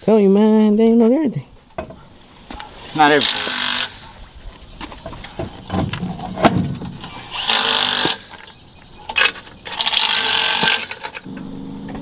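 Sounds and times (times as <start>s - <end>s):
impact wrench buzzing: 2.8s - 4.0s, 6.8s - 8.5s, 9.6s - 12.0s
metal clanks and knocks: 4.8s - 7.0s.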